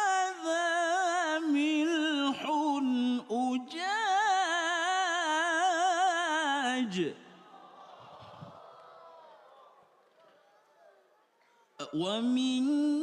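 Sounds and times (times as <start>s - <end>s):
man reciting melodically: 0.0s - 7.4s, 11.8s - 13.0s.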